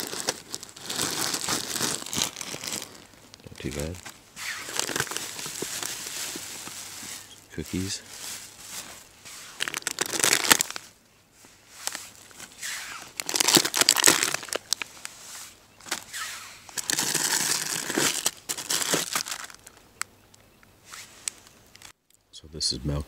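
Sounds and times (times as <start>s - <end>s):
plastic packages crinkling: 0.0s - 10.9s, 11.8s - 15.1s, 16.8s - 19.8s.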